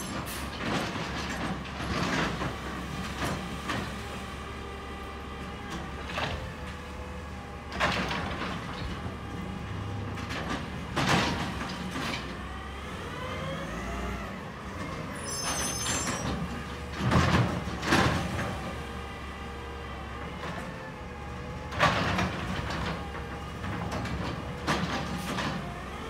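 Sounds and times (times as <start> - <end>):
garbage truck engine running: 0.2 - 14.8.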